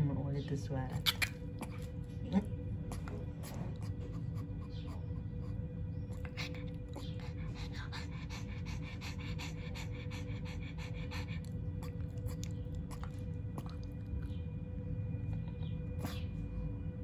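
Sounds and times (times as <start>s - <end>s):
steady low hum: 0.0s - 17.0s
dog panting quickly: 2.8s - 14.0s.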